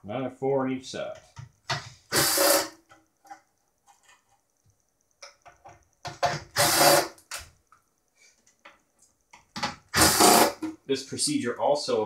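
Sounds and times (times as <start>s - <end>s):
impact driver running: 6.5s - 7.2s, 9.9s - 10.6s.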